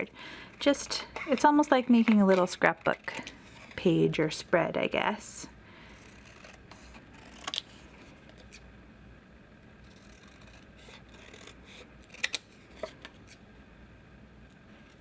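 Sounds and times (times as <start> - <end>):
scissors snipping paper: 6.0 - 7.6, 9.9 - 12.4.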